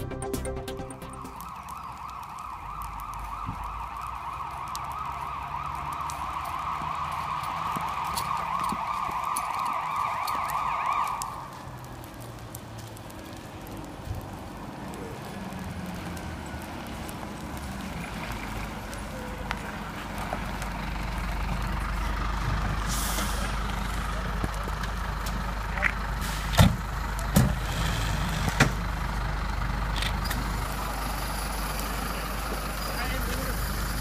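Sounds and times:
siren in a warbling yelp: 0.9s - 11.6s.

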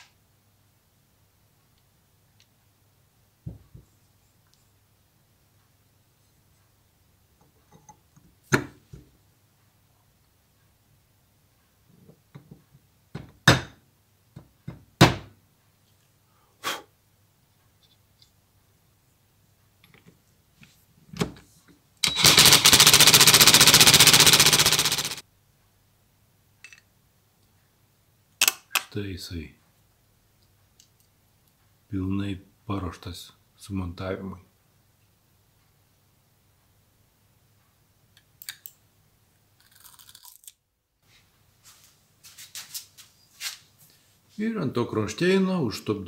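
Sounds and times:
impact wrench hammering: 22.0s - 25.2s
metal parts knocking: 22.0s - 25.2s
ratchet tool clicking: 22.0s - 25.2s.

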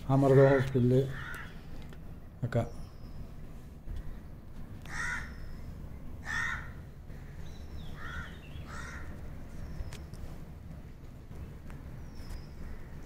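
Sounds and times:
low background rumble: 0.0s - 13.0s
crow cawing: 0.3s - 1.8s, 4.8s - 5.6s, 6.2s - 9.2s.

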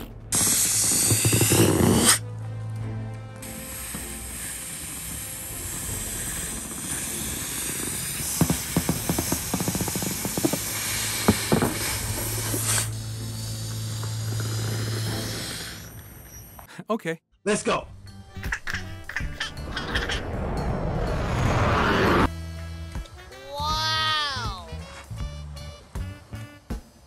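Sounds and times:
balloons rubbing and tapping: 0.3s - 2.2s, 3.4s - 16.5s
steady hiss: 0.4s - 2.2s, 3.4s - 16.7s.

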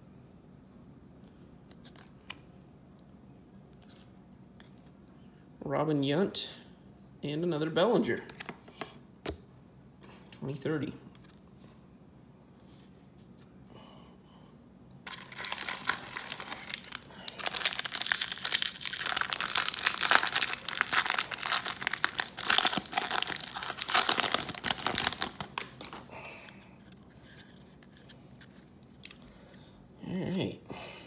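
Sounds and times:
card pack wrapper tearing and crinkling: 15.0s - 26.1s.

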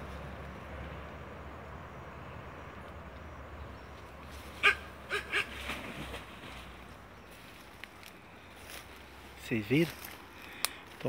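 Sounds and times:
faint animal calls: 4.4s - 5.8s.

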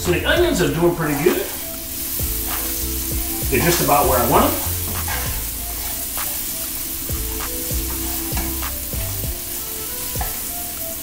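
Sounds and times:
onions sizzling in frying pan: 0.0s - 11.0s
utensil scraping a pan: 1.0s - 6.5s.

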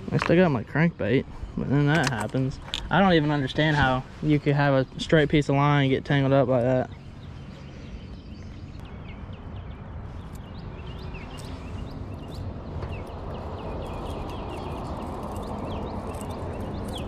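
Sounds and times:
low rushing background: 0.0s - 17.0s
small birds chirping: 0.0s - 17.0s.

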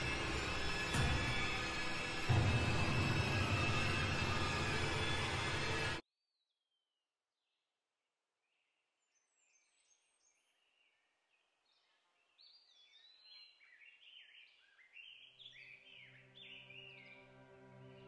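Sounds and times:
birdsong chorus: 8.5s - 18.0s.

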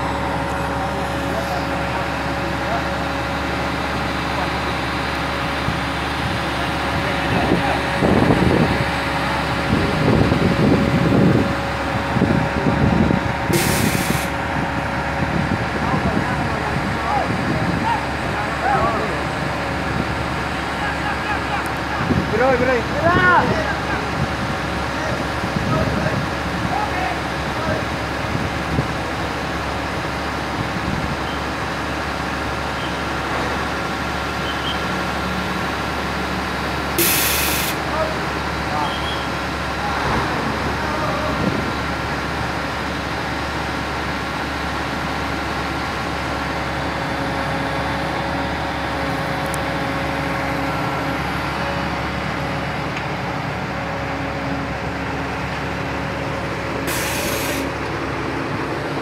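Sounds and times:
diesel engine running: 0.0s - 59.0s
air hiss: 13.5s - 14.3s, 37.0s - 37.8s, 56.9s - 57.7s.

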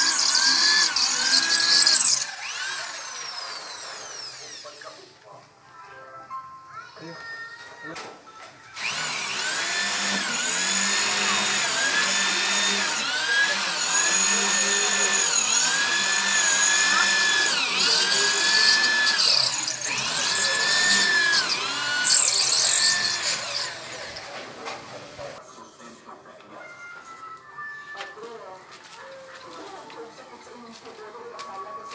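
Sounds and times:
electric drill boring into concrete: 0.0s - 4.9s, 8.8s - 24.6s.

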